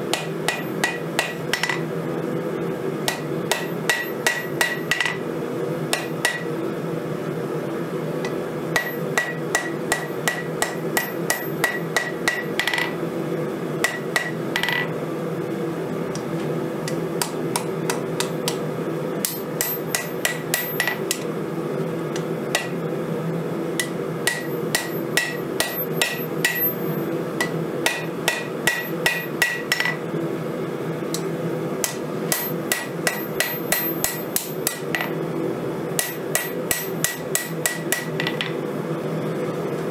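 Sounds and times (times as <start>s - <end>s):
steady low hum: 0.0s - 39.9s
hammer striking steel on anvil: 0.1s - 1.8s, 3.1s - 5.2s, 5.9s - 6.5s, 8.2s - 13.0s, 13.8s - 14.9s, 16.8s - 18.6s, 19.2s - 21.3s, 22.2s - 22.8s, 23.8s - 30.0s, 31.2s - 35.2s, 36.0s - 38.5s
anvil ringing: 23.8s - 30.0s.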